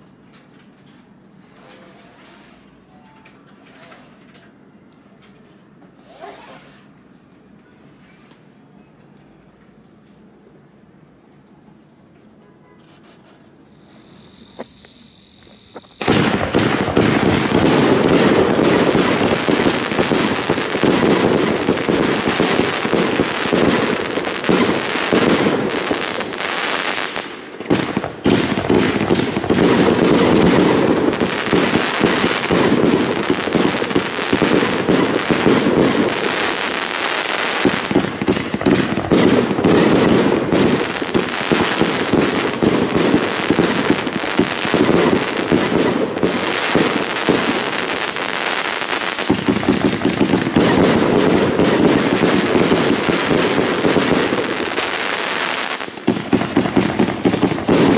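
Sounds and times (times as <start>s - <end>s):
firework barrage of shots: 13.8s - 57.9s.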